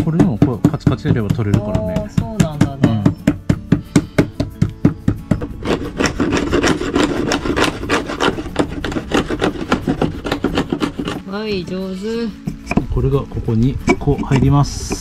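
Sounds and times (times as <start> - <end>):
chisel scraping wood: 2.8 - 11.5, 12.4 - 13.0, 13.6 - 15.0.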